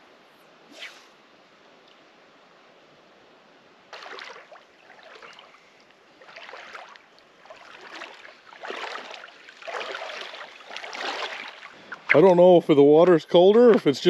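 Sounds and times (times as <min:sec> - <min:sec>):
water sloshing around legs: 0:03.9 - 0:12.3.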